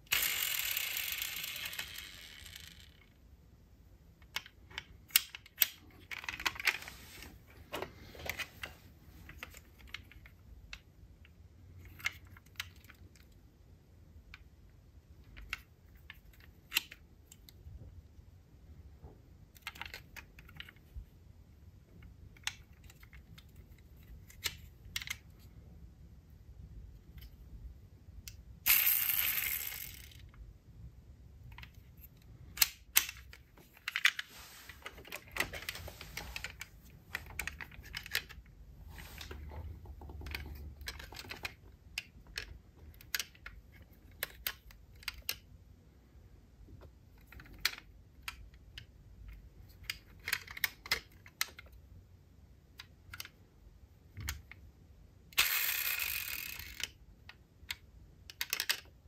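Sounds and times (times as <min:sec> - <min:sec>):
toy cars clicking and clinking: 0:00.0 - 0:03.2, 0:28.7 - 0:30.4, 0:55.4 - 0:57.0, 0:57.7 - 0:58.9
rustling scrapes on cardboard: 0:34.3 - 0:34.9.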